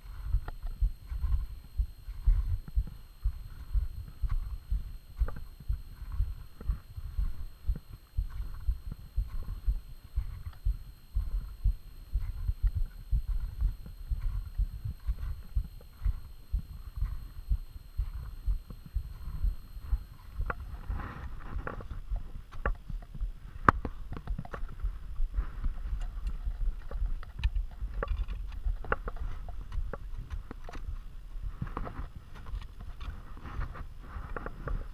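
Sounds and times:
footsteps in packed snow: 20.1 - 22.4.

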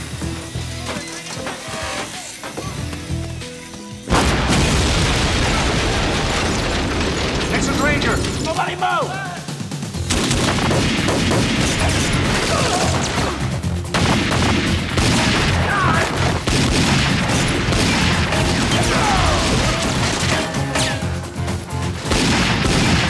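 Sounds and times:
dramatic music score: 0.0 - 23.0
rapid gunfire: 9.5 - 23.0.

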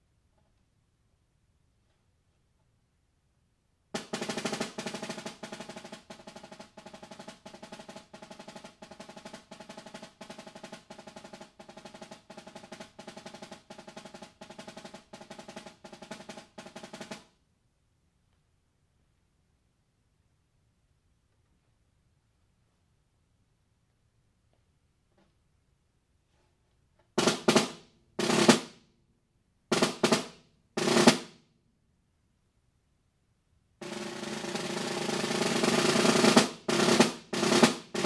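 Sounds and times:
snare drum fast roll: 4.0 - 17.4, 27.2 - 28.8, 29.7 - 31.4, 33.8 - 38.0.

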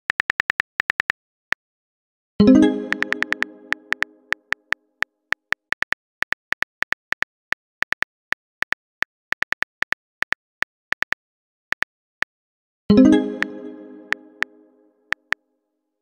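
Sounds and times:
phone keyboard typing clicks: 0.1 - 1.2, 2.9 - 11.9.

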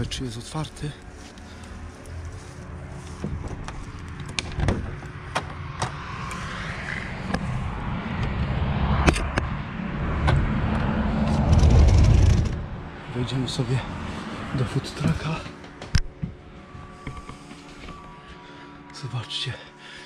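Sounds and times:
low microphone rumble: 0.0 - 13.9.

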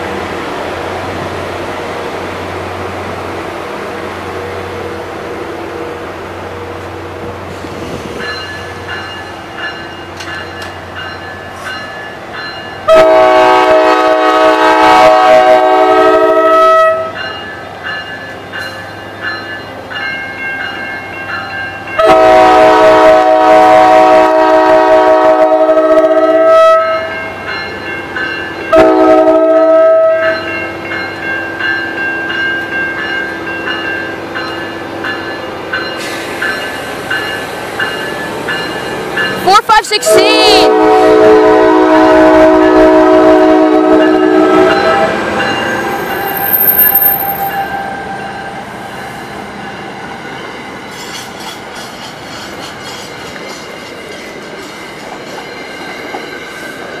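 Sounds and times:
locomotive air horn blasts: 12.9 - 17.1, 22.0 - 27.1, 28.7 - 30.3, 40.0 - 45.2.

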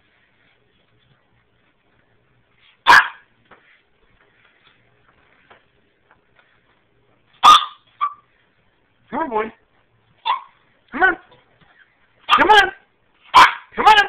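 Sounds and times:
puppy barking: 2.8 - 3.3, 7.4 - 8.3, 10.2 - 10.6, 12.2 - 12.7, 13.3 - 13.8.

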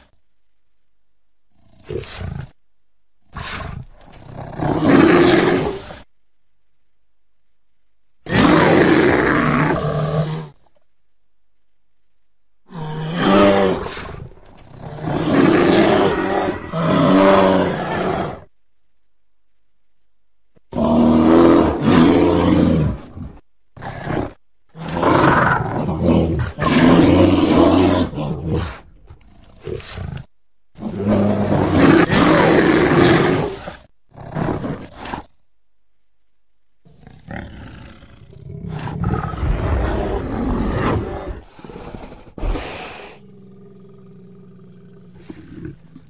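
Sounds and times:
bear growling: 1.5 - 2.6, 3.2 - 6.1, 8.2 - 10.8, 12.6 - 18.5, 20.7 - 35.4, 36.8 - 46.0.

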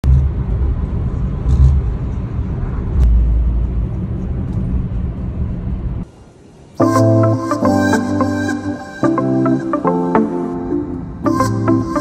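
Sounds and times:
moving vehicle rumble: 0.0 - 6.2.

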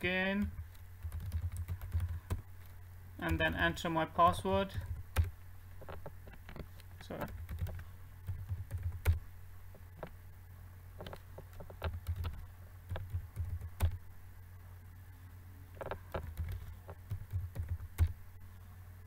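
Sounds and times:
computer keyboard typing: 0.6 - 9.2, 11.0 - 14.0, 15.8 - 18.2.

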